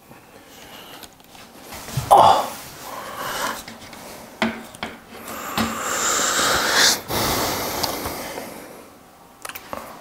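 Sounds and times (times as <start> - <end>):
man breathing heavily: 2.0 - 4.4, 5.1 - 9.0.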